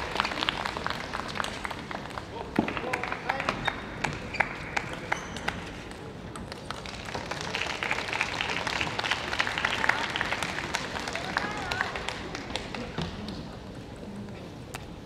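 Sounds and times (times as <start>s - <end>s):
scattered clapping: 0.0s - 5.7s, 6.4s - 13.5s
low crowd noise: 0.0s - 15.0s.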